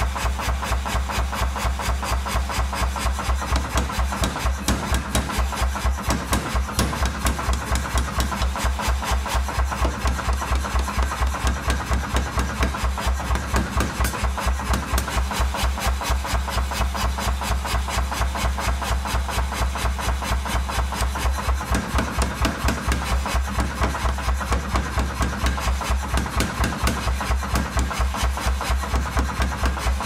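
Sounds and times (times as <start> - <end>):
forging hammer blows: 3.4 - 15.4.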